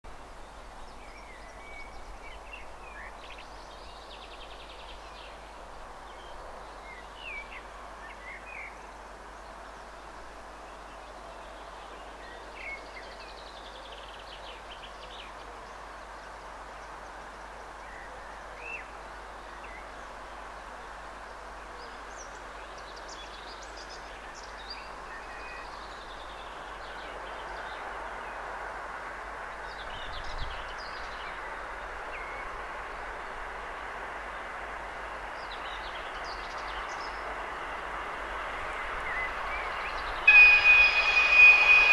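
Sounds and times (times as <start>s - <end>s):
diesel locomotives rumbling: 37.3s - 41.9s
bird chirps: 39.7s - 41.9s.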